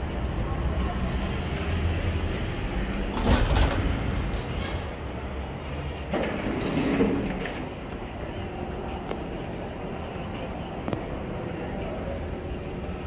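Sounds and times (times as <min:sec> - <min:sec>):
street noise: 0:00.0 - 0:13.0
glass doors sliding open: 0:01.7 - 0:05.1, 0:05.9 - 0:07.8.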